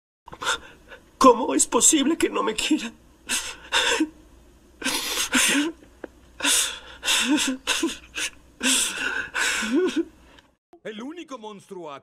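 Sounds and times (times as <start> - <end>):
man sobbing: 2.6 - 4.2, 4.8 - 10.2.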